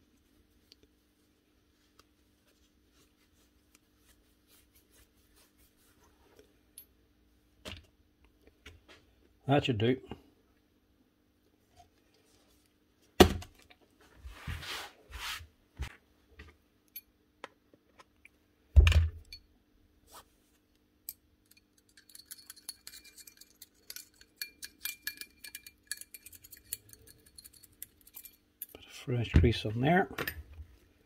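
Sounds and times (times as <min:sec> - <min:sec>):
metal rod scratching and clicking: 0:21.5 - 0:28.8.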